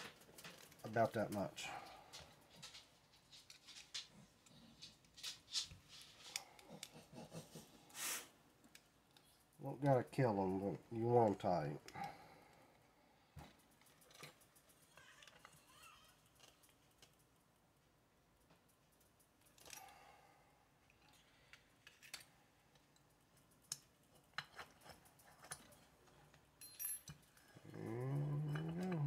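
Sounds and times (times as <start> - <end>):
low voice-like sound: 27.6 - 29.0.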